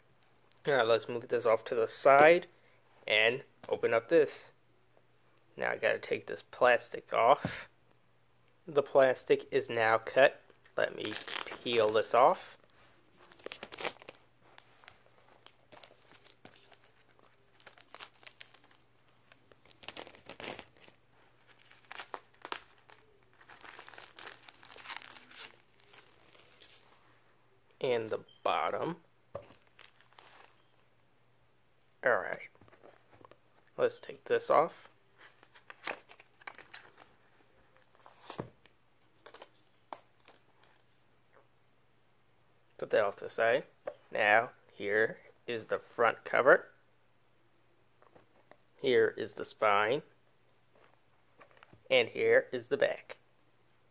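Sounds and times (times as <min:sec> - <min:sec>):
shrink-wrap crinkling: 0:11.0 - 0:27.0, 0:29.4 - 0:30.7.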